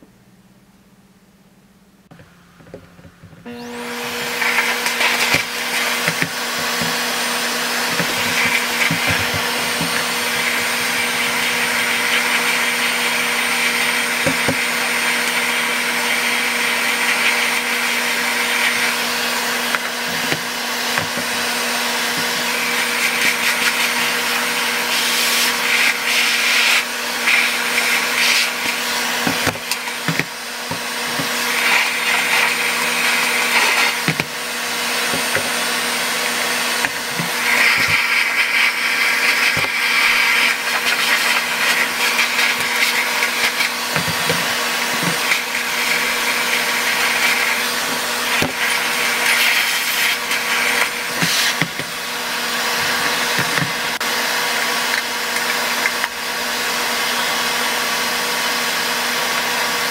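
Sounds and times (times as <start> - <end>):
stick vacuum whining: 2.1 - 59.9.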